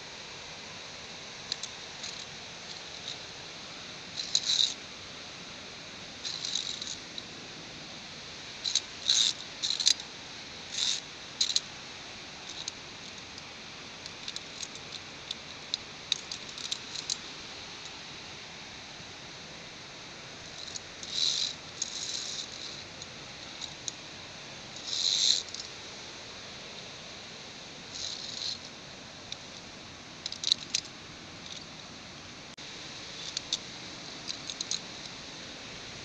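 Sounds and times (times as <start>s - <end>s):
steady background hiss: 0.0s - 36.0s
carabiners clinking on steel cable: 1.4s - 3.2s, 4.2s - 4.8s, 6.2s - 7.0s, 8.6s - 10.1s, 10.7s - 11.7s, 12.4s - 12.8s, 14.1s - 17.2s, 20.5s - 24.0s, 24.8s - 25.7s, 27.9s - 28.7s, 30.2s - 31.8s, 33.1s - 34.9s.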